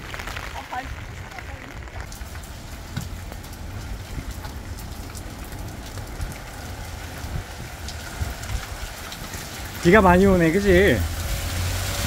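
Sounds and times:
heavy rain hissing: 0.0s - 12.0s
wind buffeting microphone: 0.0s - 12.0s.

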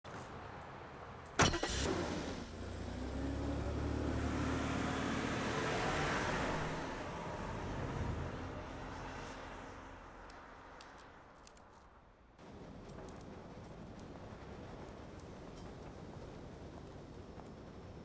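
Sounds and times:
car engine driving off: 1.4s - 9.6s.

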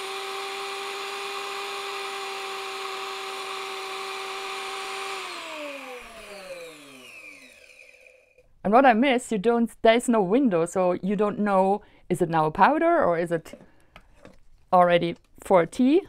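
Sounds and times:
electric grinder whine: 0.0s - 8.4s.

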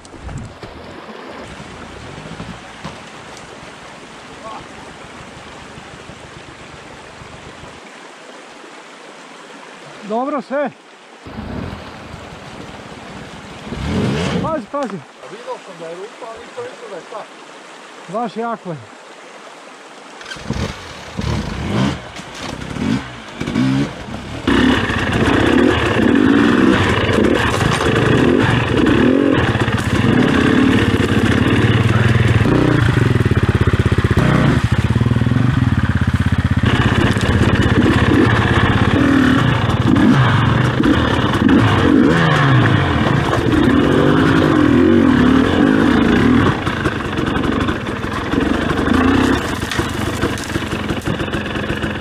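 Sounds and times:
motorcycle engine revving: 13.7s - 14.6s, 20.2s - 52.0s.

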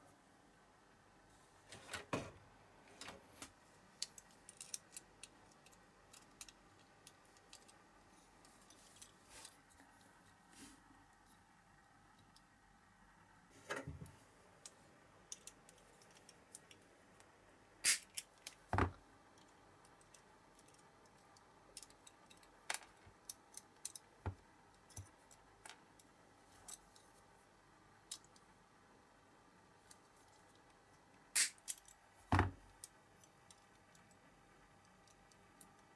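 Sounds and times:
pliers clicking on metal parts: 4.0s - 7.8s, 28.1s - 28.4s.

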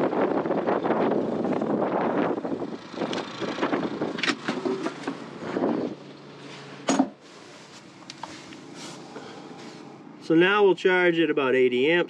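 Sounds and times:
wind buffeting microphone: 0.0s - 6.1s
generator humming: 0.0s - 10.9s.

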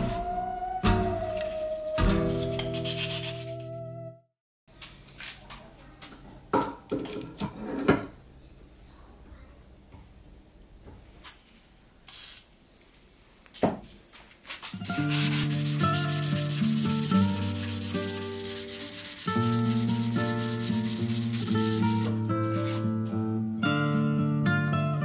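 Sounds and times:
background music: 0.0s - 4.3s, 14.9s - 25.0s
sandpaper scraping steel blade: 1.6s - 3.8s, 14.5s - 22.9s.

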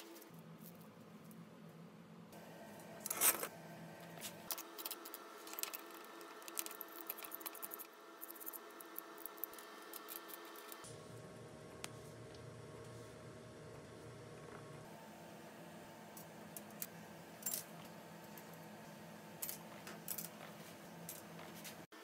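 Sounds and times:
metal parts clinking on steel table: 3.0s - 3.5s, 19.4s - 20.4s.

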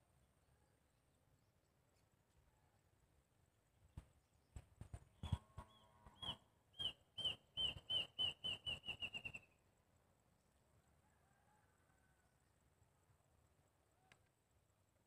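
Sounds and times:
bird chirping: 4.5s - 9.6s.

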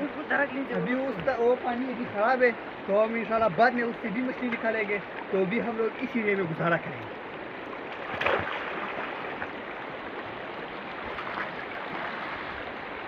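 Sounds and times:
stream water rushing: 0.0s - 13.0s
splash of people wading: 7.9s - 9.5s.

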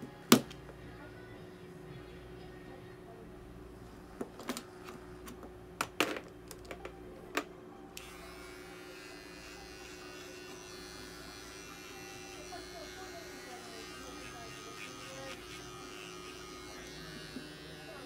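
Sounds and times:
pet trimmer buzzing: 8.0s - 18.0s.

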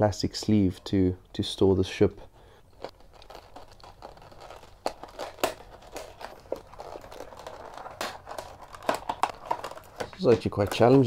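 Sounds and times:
plastic crinkling: 2.6s - 11.0s
scissors snipping plastic: 2.8s - 11.0s.

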